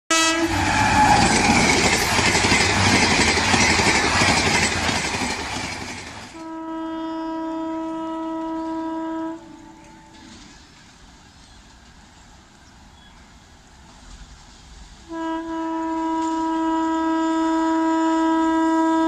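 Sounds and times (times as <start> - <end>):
train horn blowing: 0.1 - 1.8, 6.3 - 10.6, 15.0 - 19.0.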